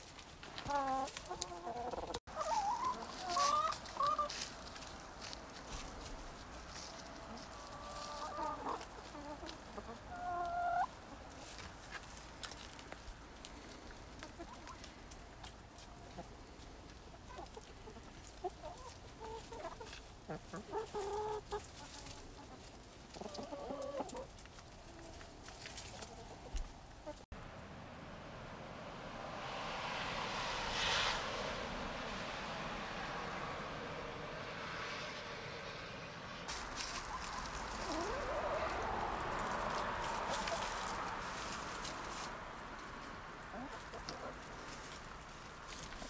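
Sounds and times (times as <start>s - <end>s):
hens scratching and pecking: 0.0s - 27.3s, 36.5s - 46.0s
rush of outdoor noise: 0.0s - 46.0s
hens clucking: 0.4s - 27.2s, 36.5s - 46.0s.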